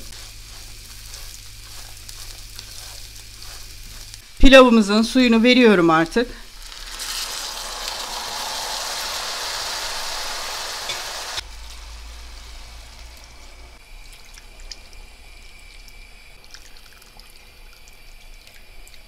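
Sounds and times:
broth sizzling in hot pan: 0.0 - 16.8
liquid sounds: 6.1 - 19.0.

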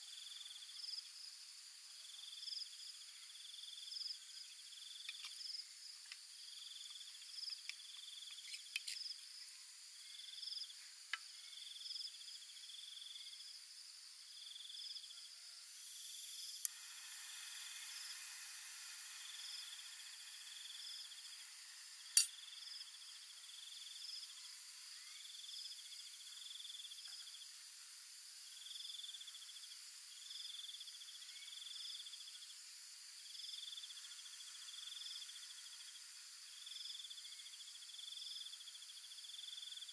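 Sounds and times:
insects chirping: 0.0 - 39.9
gas burner hissing: 15.7 - 24.8.

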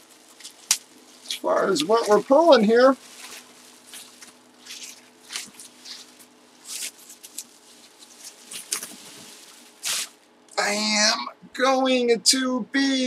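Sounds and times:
bubble wrap rustling and crinkling: 0.0 - 10.3.

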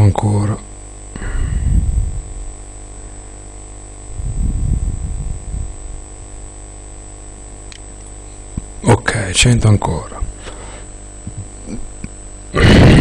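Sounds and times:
electrical mains hum with whine: 0.0 - 13.0
low muffled rumble: 1.4 - 2.7, 4.1 - 6.5.

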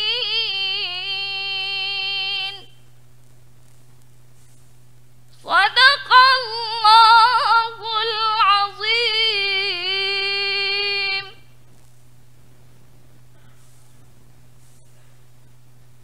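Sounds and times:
woman chanting recitation: 0.0 - 2.8, 5.4 - 11.5.

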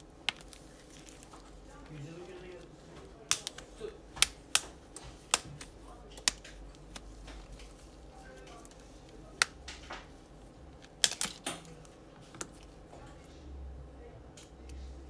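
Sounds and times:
plastic clips snapping: 3.3 - 7.7, 10.8 - 12.5.

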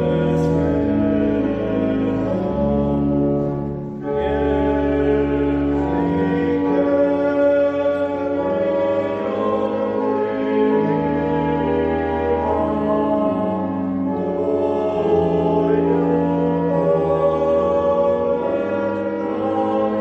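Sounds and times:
pipe organ playing a hymn: 0.0 - 20.0.

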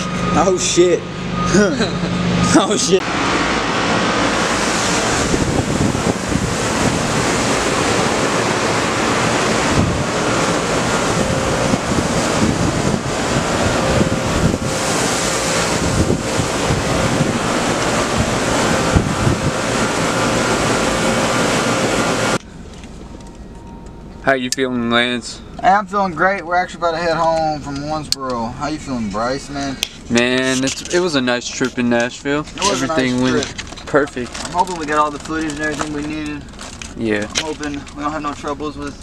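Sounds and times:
drone propellers whining: 0.0 - 26.1
wind on microphone: 3.7 - 22.4.

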